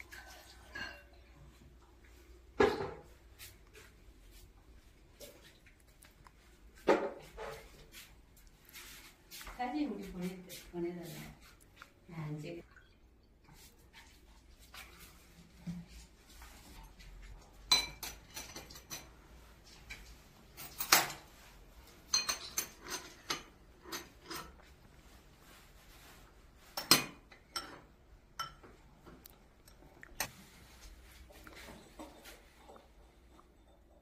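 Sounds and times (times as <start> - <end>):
utensils clinking against ceramic bowls: 0.0 - 1.3, 17.6 - 19.2, 22.0 - 24.8, 26.7 - 28.7.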